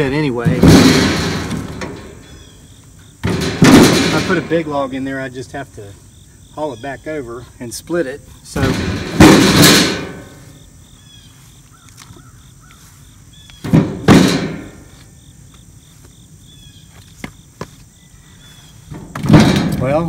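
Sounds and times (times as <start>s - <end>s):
firewood clunking into steel cart: 0.0s - 5.0s, 8.5s - 10.6s, 13.6s - 15.0s, 18.9s - 20.0s.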